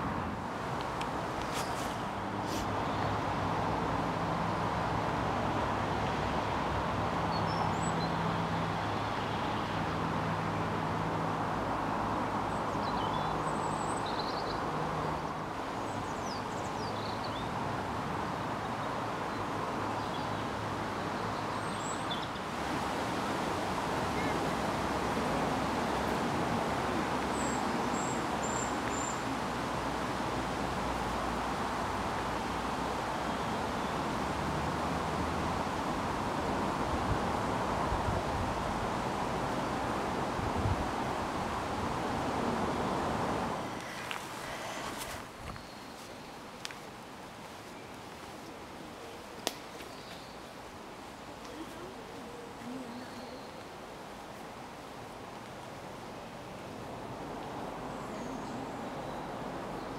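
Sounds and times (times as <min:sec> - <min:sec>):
steady rushing noise: 0:34.0 - 0:45.6.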